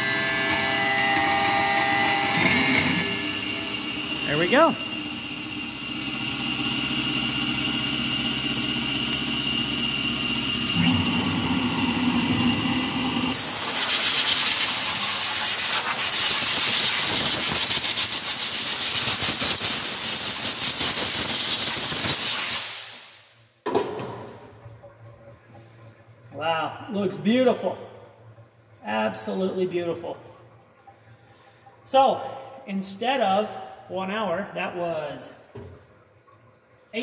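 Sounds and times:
milling machine spindle whine: 0.0 - 13.4
compressed air blow gun hissing: 13.3 - 23.0.

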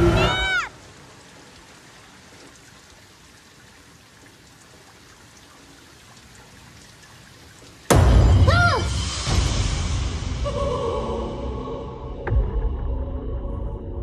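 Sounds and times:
water trickling into storm drain: 0.0 - 9.4
faint drips: 0.8 - 7.9.

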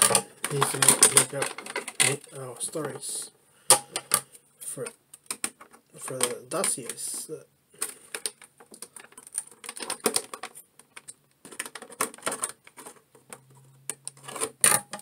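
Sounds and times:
loud plastic crack: 7.8 - 13.0
plastic packaging crackling: 7.8 - 15.0.

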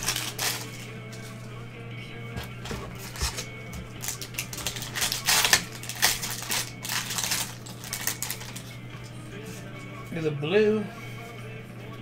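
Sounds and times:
foil wrapper crinkling and tearing: 0.0 - 1.2, 3.0 - 8.7.

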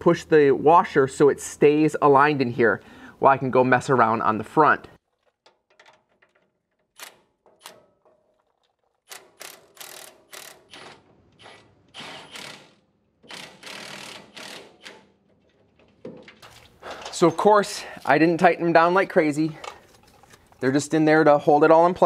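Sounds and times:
cordless impact wrench bursts: 9.1 - 15.1.

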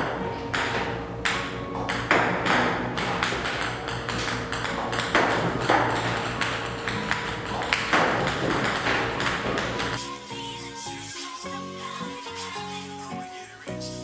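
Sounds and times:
table-tennis balls clicking: 0.0 - 10.0.

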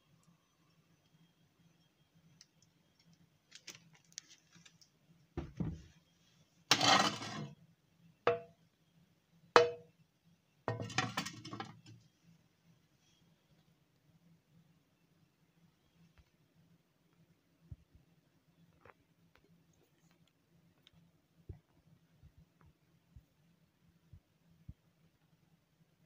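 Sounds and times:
kitchenware clinking and clattering: 6.7 - 7.5, 10.7 - 11.9.

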